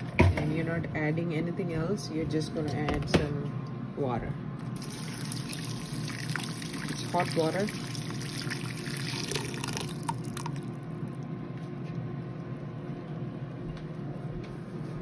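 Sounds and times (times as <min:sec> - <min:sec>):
steady low hum: 0:00.0 - 0:15.0
water pouring into pot: 0:04.8 - 0:10.9.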